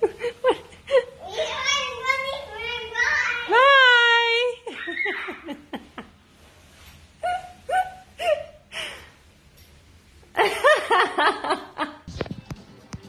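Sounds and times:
child giggling: 4.6 - 6.1.

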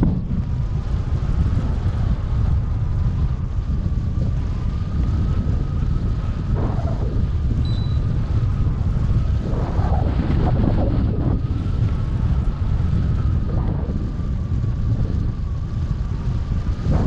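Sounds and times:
wind rumbling on microphone: 0.0 - 17.0
faint steady whistle: 7.6 - 8.3.

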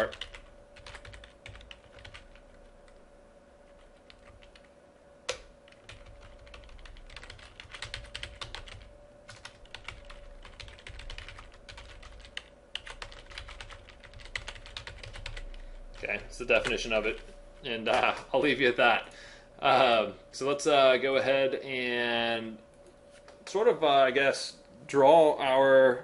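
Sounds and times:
typing on computer keyboard: 0.0 - 2.5, 5.3 - 15.5
faint steady hum: 0.0 - 26.0.

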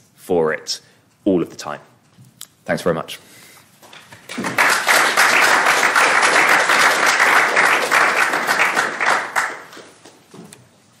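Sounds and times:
audience applauding: 4.2 - 10.1.

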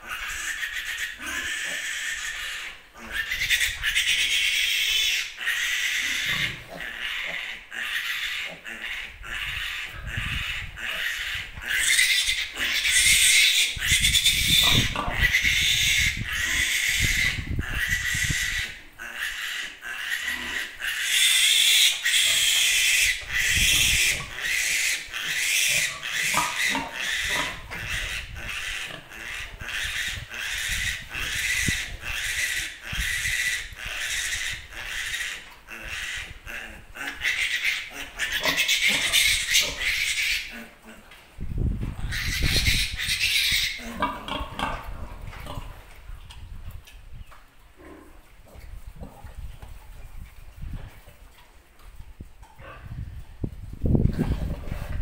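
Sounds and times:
piglet squealing: 0.0 - 36.3, 37.0 - 40.5, 42.0 - 43.9.

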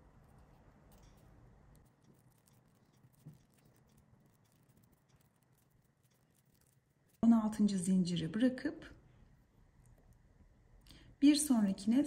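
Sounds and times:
faint paper rustles and ticks: 0.0 - 7.9.

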